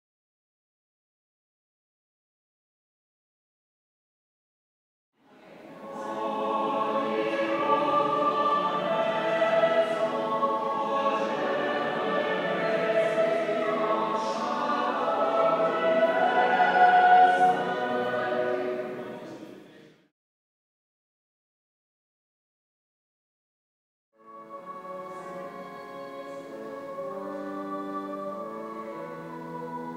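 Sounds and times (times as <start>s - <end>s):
choir singing held chords: 5.3s - 19.8s, 24.3s - 29.9s.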